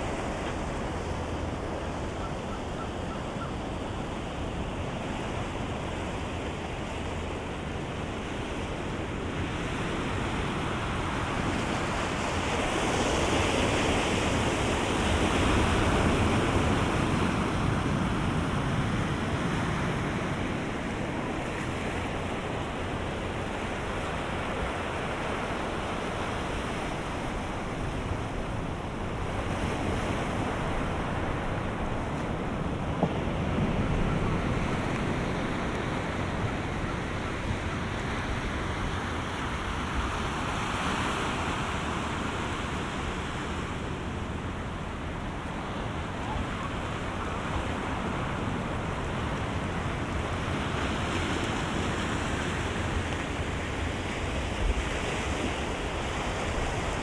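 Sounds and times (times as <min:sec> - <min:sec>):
ocean waves breaking on shore: 0:00.0 - 0:57.0.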